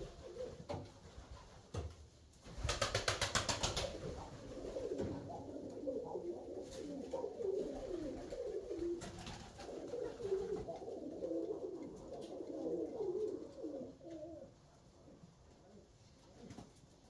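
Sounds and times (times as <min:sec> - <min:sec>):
pigeons cooing: 0:00.0 - 0:00.8, 0:03.7 - 0:14.6.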